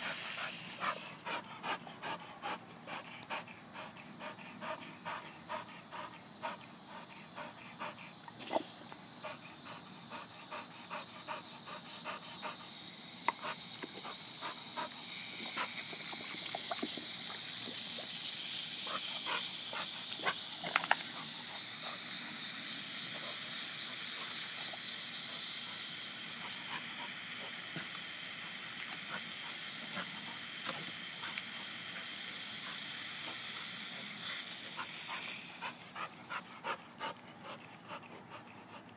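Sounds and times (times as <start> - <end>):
water hissing from hose nozzle: 0.0 - 1.8, 5.9 - 36.8
dog panting: 0.0 - 8.6, 9.2 - 12.7, 18.8 - 22.1, 34.1 - 38.9.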